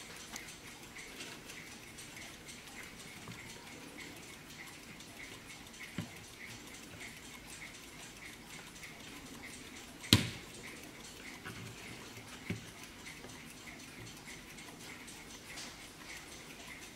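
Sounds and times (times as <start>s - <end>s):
clock ticking softly: 0.0s - 16.9s
clock knocking when turned: 9.0s - 13.2s.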